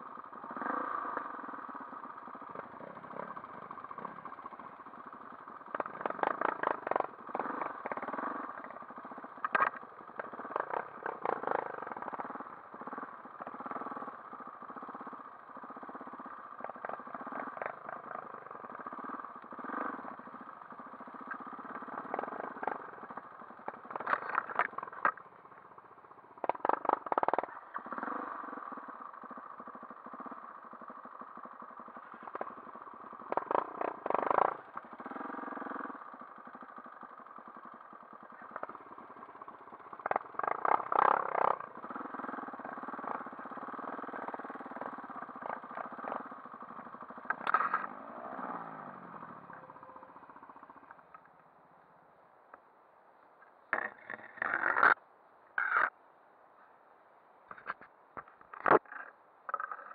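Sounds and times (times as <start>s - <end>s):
dirt bike engine running: 0.0s - 51.4s, 53.7s - 55.0s, 57.5s - 59.9s.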